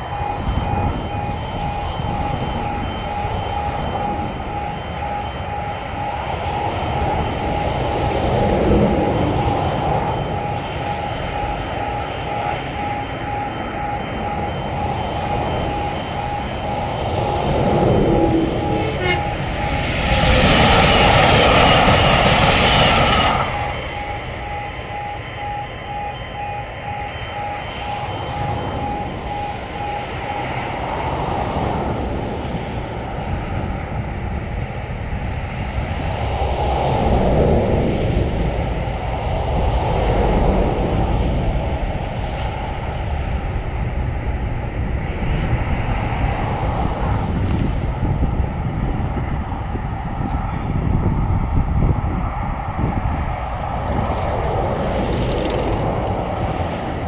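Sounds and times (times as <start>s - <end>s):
pulsing crossing beep: 0.0s - 31.6s
electric train passing at speed: 0.0s - 57.0s
low rumble of wind: 0.0s - 57.0s.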